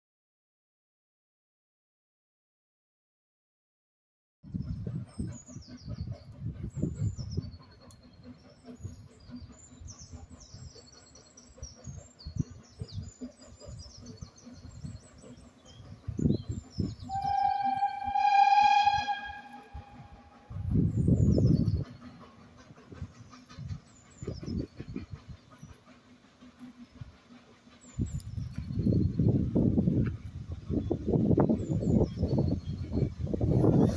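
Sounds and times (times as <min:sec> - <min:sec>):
steam locomotive whistle: 0:17.0 - 0:20.8.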